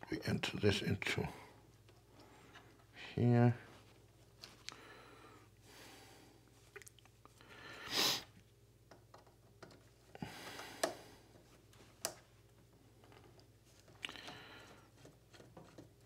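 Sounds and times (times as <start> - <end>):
wires handled in terminal block: 8.8 - 16.0.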